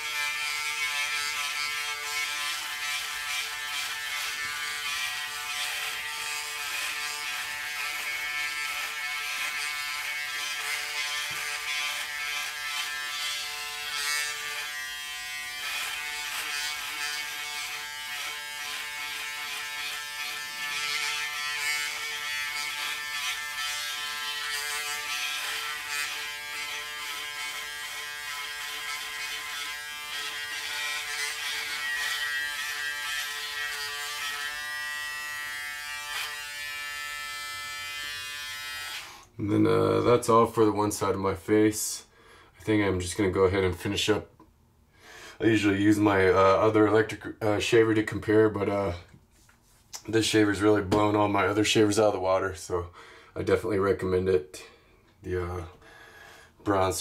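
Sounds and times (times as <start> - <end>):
electric shaver running: 0.0 - 39.3.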